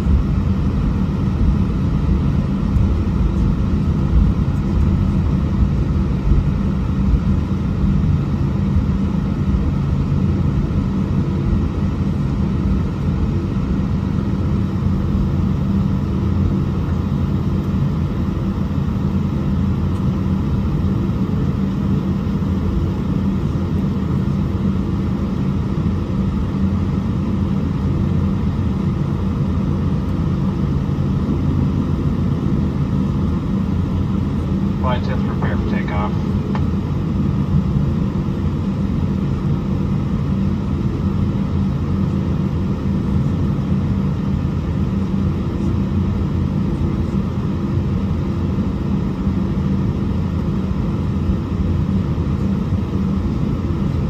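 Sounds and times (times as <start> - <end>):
jet airliner engines rumbling: 0.0 - 54.0.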